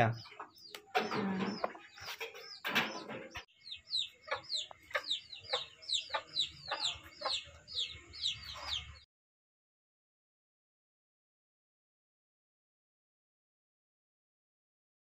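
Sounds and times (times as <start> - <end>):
lower bird calls: 0.0 - 9.0
bird chirping: 0.0 - 9.1.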